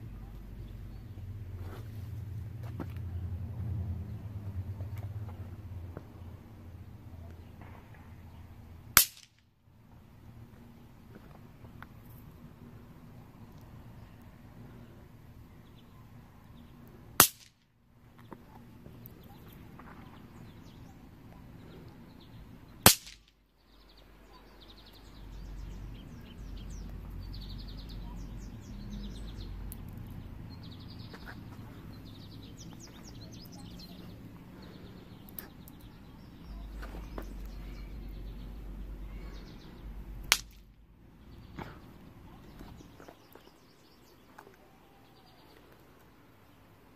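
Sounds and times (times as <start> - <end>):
bang snaps cracking on concrete: 8.9 - 9.5, 17.2 - 17.7, 22.8 - 23.4, 40.2 - 40.8.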